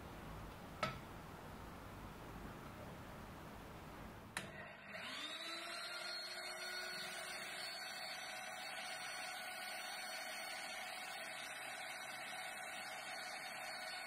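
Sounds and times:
drill press motor whining: 4.4s - 14.0s.

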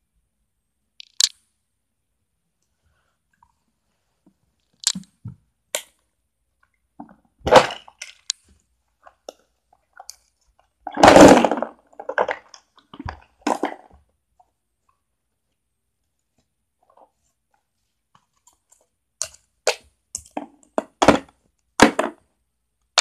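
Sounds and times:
plastic toy dishes clicking: 1.0s - 1.4s.

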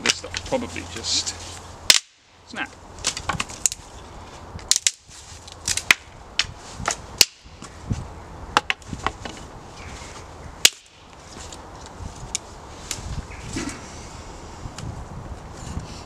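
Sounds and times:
dry sticks snapping: 1.9s - 2.3s, 3.0s - 4.0s, 4.6s - 7.8s, 10.6s - 13.0s.

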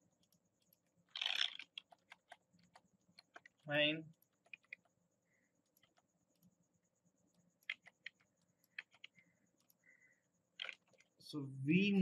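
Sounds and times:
mouse and keyboard clicks: 0.2s - 3.6s, 4.2s - 5.0s, 5.7s - 6.5s, 7.3s - 9.8s, 10.6s - 11.1s.

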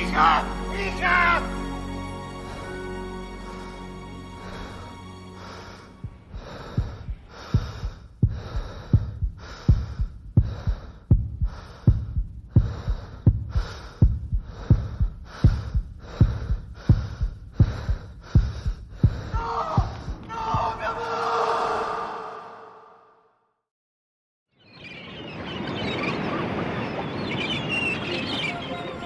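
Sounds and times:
heartbeat thuds: 6.0s - 20.9s.

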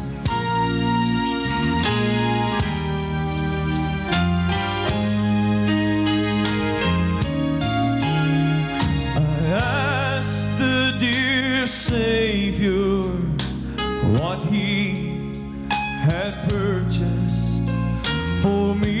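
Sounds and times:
drums: 0.0s - 19.0s
electric keyboard: 0.0s - 19.0s
man singing with vibrato: 9.0s - 15.4s, 16.0s - 19.0s.

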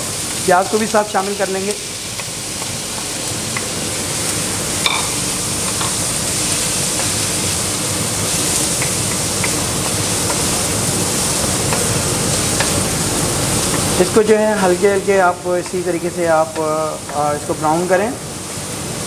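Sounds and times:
onions sizzling in oil: 0.0s - 19.0s
spatula knocking wok: 4.8s - 6.1s, 8.5s - 17.2s.

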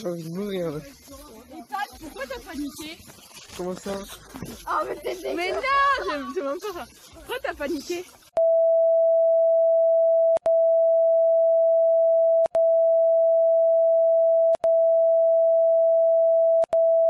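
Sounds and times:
censor bleep tone: 8.4s - 17.0s.

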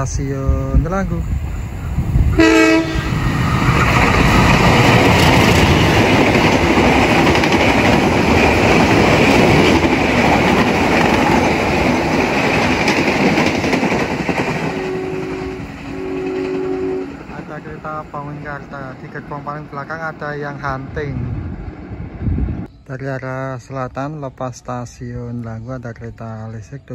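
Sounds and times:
train horn blasts: 2.3s - 3.2s, 14.5s - 17.8s
train wheels clattering on rails: 3.2s - 19.9s.

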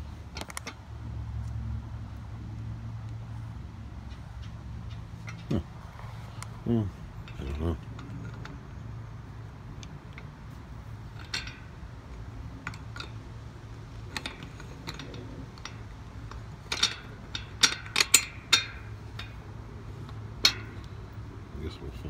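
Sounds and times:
metal tube clicking on plastic bracket: 14.1s - 19.4s, 20.1s - 21.0s.

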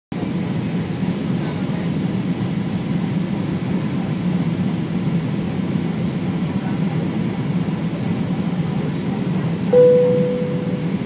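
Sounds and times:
airliner cabin engine rumble: 0.1s - 11.0s
faint steady high tones: 9.7s - 11.0s.

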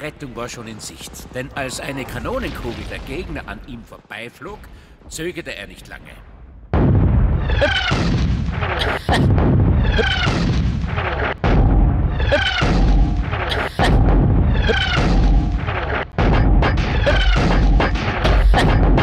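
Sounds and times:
cannon boom: 6.7s - 19.0s.

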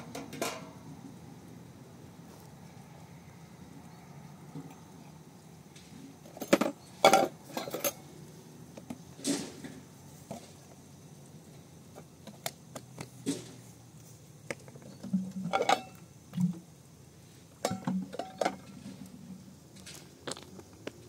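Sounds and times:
metal dishes clinking: 0.0s - 0.8s, 6.4s - 8.0s, 15.4s - 16.0s, 17.6s - 18.7s.

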